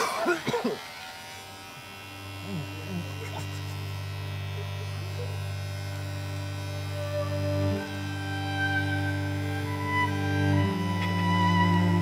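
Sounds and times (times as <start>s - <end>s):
electric hair clipper buzzing: 0.0s - 12.0s
low string music: 5.5s - 12.0s.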